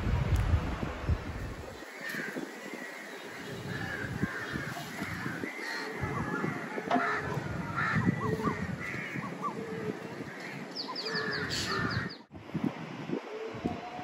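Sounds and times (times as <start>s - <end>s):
birds high chirps: 1.7s - 12.3s
crows cawing: 1.9s - 12.2s.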